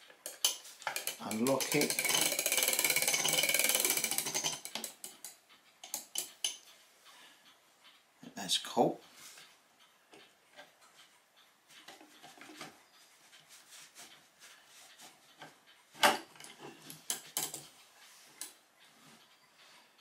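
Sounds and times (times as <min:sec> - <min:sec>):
metal parts clicking and knocking: 0:00.0 - 0:06.7, 0:15.0 - 0:17.8.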